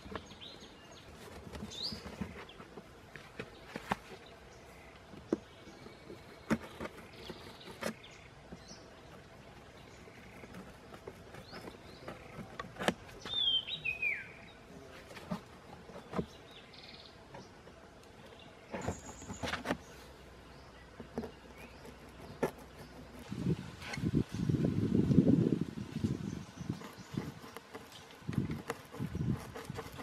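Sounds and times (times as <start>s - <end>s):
hands handling cardboard box: 0.0s - 4.4s, 5.0s - 13.7s, 14.9s - 16.5s, 18.4s - 20.2s, 20.8s - 24.1s, 26.6s - 30.0s
bird chirp: 0.0s - 25.0s, 25.9s - 30.0s.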